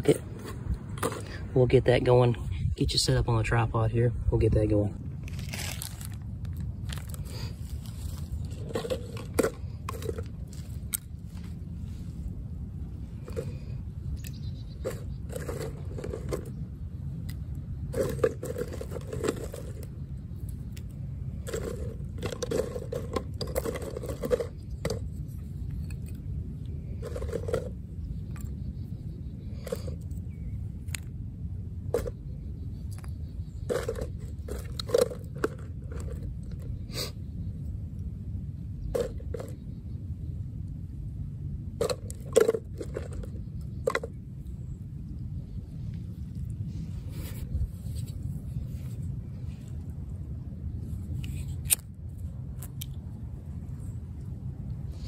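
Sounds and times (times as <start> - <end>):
wind on microphone: 2.2 - 3.5, 41.8 - 55.0.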